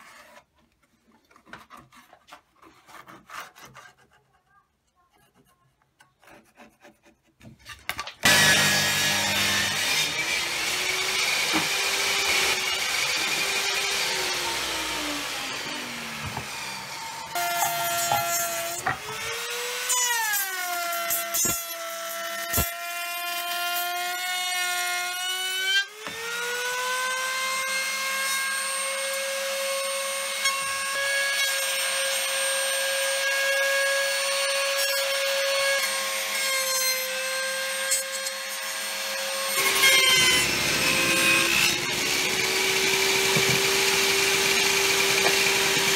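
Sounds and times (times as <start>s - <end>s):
router high whine: 39.6s - 45.9s.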